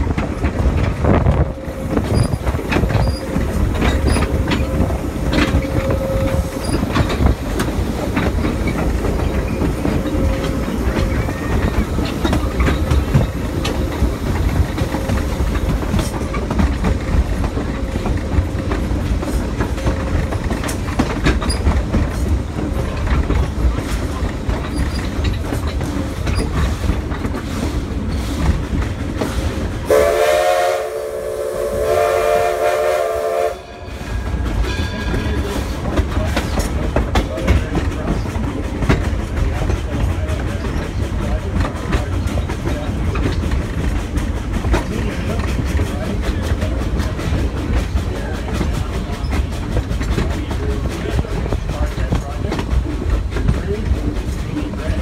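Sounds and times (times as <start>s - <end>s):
wheel clicks over rail joints: 0.0s - 29.8s, 34.4s - 55.0s
train rumble: 0.0s - 55.0s
steam whistle chord: 29.9s - 33.9s.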